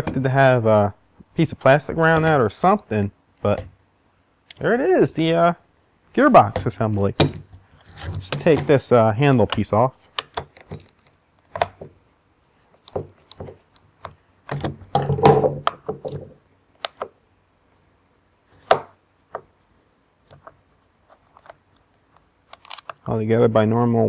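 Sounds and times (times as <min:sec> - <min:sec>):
tools handled on wooden workbench: 0:06.5 - 0:12.0, 0:12.6 - 0:17.1.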